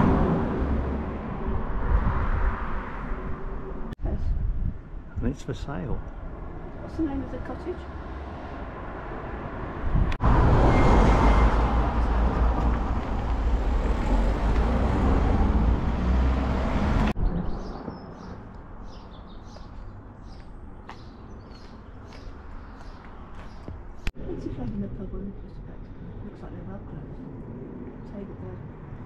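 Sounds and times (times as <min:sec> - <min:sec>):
car passing close by: 0:00.0 - 0:04.0, 0:07.6 - 0:17.2.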